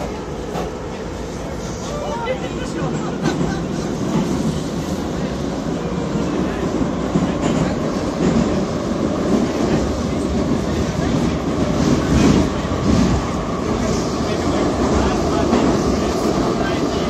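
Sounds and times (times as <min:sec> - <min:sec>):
train carriage rumble: 0:00.0 - 0:17.0.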